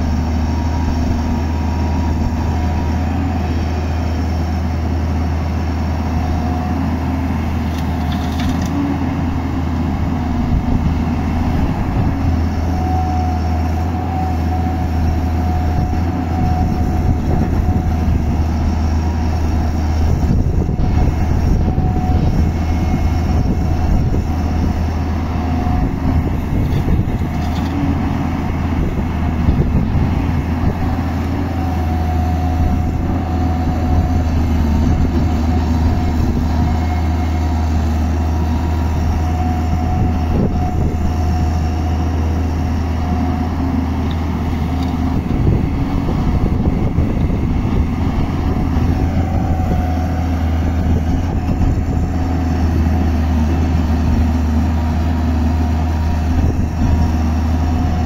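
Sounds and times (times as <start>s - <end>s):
excavator diesel engine: 0.0s - 58.0s
hydraulic whine: 0.0s - 58.0s.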